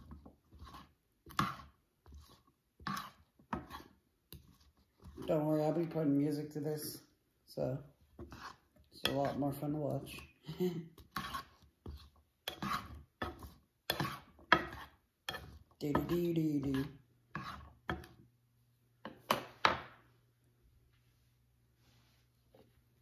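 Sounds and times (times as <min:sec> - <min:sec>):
spatula scraping a frying pan: 0:00.0 - 0:05.4, 0:08.1 - 0:10.3, 0:11.0 - 0:18.2.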